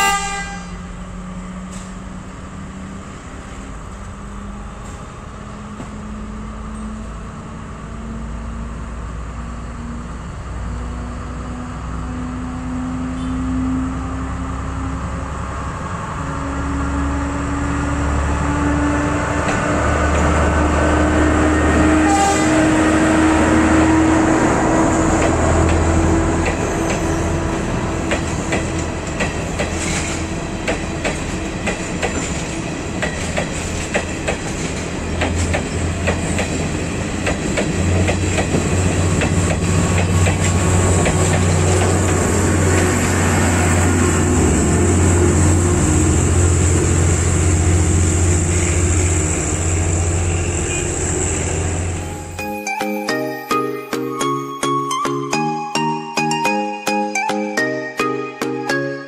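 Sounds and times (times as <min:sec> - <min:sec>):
diesel engine drone: 0:00.5 - 0:33.0, 0:34.9 - 0:52.4
train wheels clattering over joints: 0:26.4 - 0:43.0.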